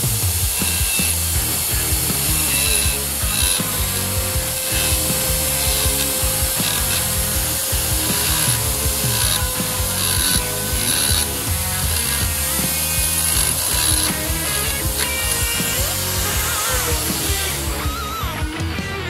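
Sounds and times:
die grinder motor whine: 0.0 - 19.0
grinding chatter on metal: 0.0 - 19.0.

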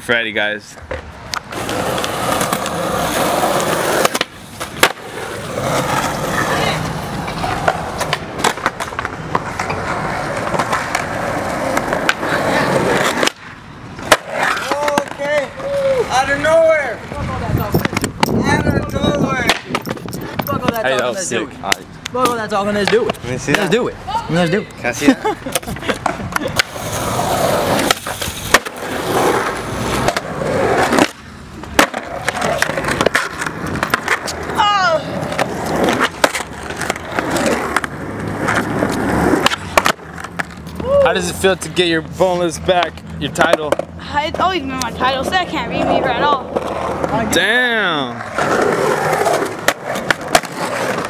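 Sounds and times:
skateboard wheels rolling on concrete: 0.0 - 51.0
sharp skateboard clicks: 0.8 - 15.8, 17.6 - 21.1, 21.7 - 23.8, 25.5 - 40.9, 48.2 - 51.0.

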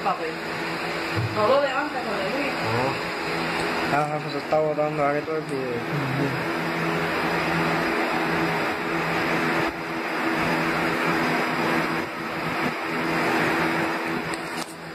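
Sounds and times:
mechanical hum with rushing hiss: 0.0 - 14.9.

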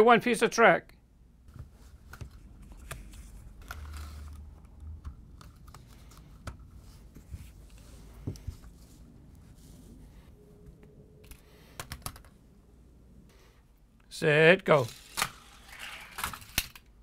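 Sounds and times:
plastic track pieces clicking: 14.8 - 16.9.

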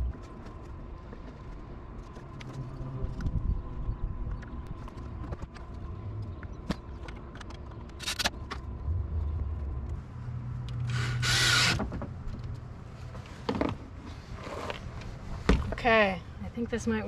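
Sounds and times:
cordless drill driving a screw: 10.8 - 11.8.

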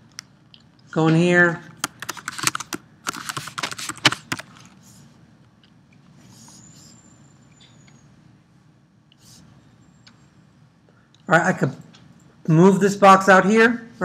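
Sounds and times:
mouse and keyboard clicks: 1.8 - 4.5.

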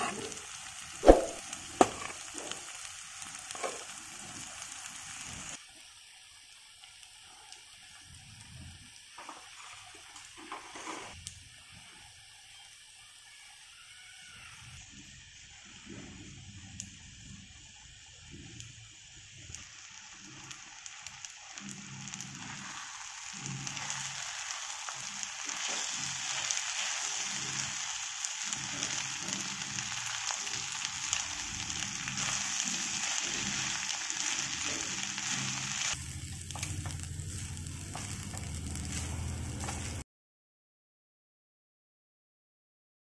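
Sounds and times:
spatula stirring in a pan: 0.0 - 5.6, 9.2 - 12.7, 20.0 - 40.0
rice sizzling in a pan: 0.0 - 40.0.

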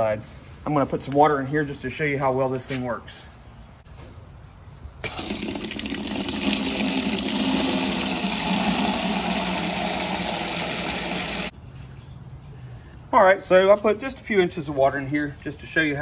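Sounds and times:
water pouring into plastic cooler: 5.1 - 11.5.

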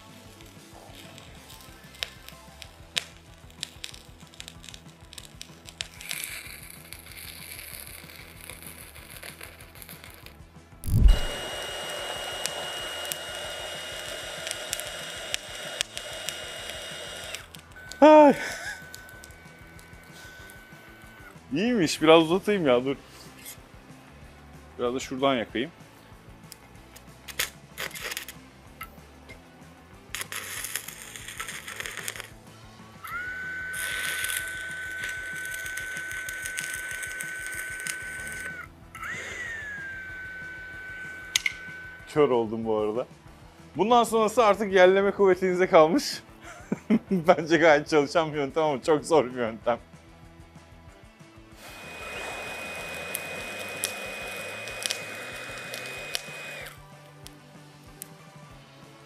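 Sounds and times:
welding arc crackling hiss: 0.0 - 22.6, 26.4 - 28.4, 30.0 - 42.4, 51.5 - 58.2
high whine: 5.9 - 22.6, 30.0 - 42.7, 51.6 - 56.9.

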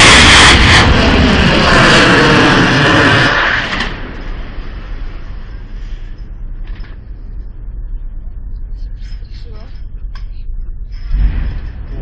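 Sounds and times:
underwater explosion rumble: 0.0 - 7.8.

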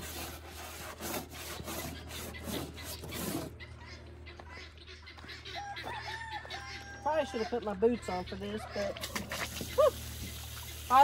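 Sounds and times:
stiff brush scrubbing: 0.0 - 3.6.

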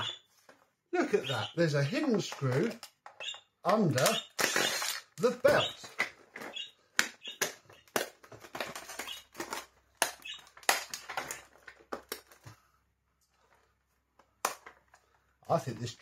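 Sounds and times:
plastic parts clicking and rustling: 1.8 - 16.0.

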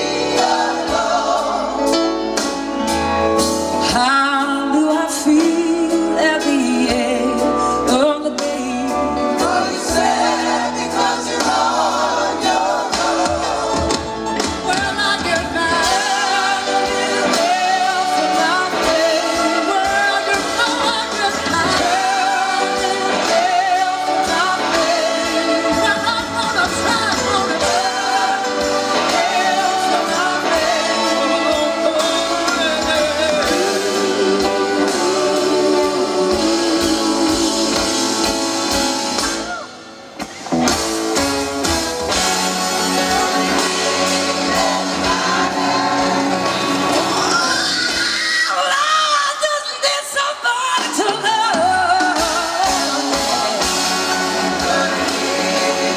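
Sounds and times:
backing singers chorus: 0.0 - 2.6, 8.4 - 39.7, 42.1 - 55.9
live rock band: 0.0 - 55.9
man singing lead: 14.6 - 38.3.

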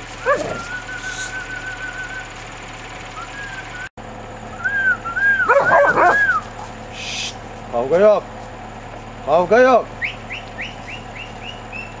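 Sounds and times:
dogs yelping: 0.0 - 1.8, 5.2 - 7.5
dogs whining: 0.1 - 2.2, 4.7 - 6.8.

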